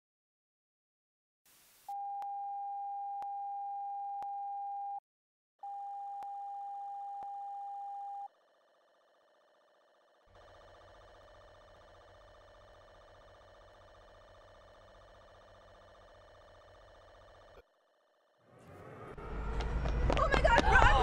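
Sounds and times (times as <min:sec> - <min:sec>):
electronic test tone: 0:05.6 - 0:08.4
low buzzing hum: 0:05.7 - 0:20.2.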